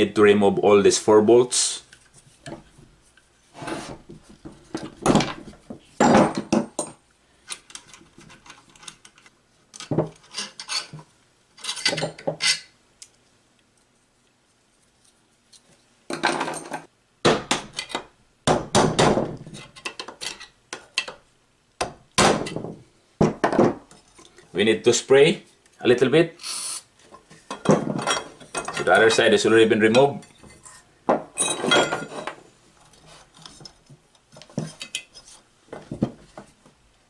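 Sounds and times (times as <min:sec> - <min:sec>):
metal tools clattering on wooden bench: 0:04.7 - 0:07.0, 0:09.8 - 0:12.7, 0:16.1 - 0:16.9, 0:27.1 - 0:29.3, 0:29.9 - 0:32.4.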